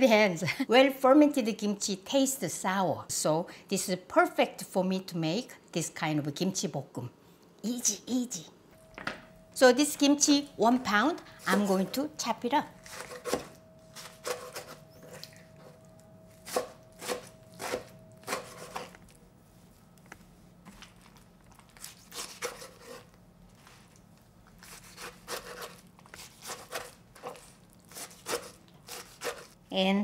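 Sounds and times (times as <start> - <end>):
knife chopping on wooden board: 16.4 - 18.9.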